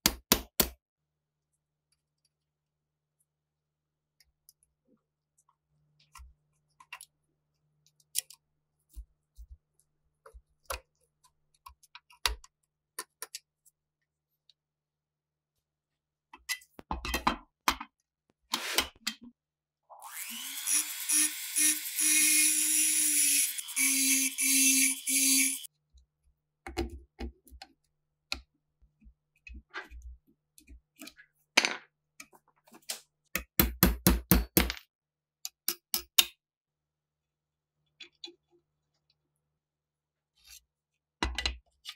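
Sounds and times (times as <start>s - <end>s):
small power tool running: 20.0s - 25.7s.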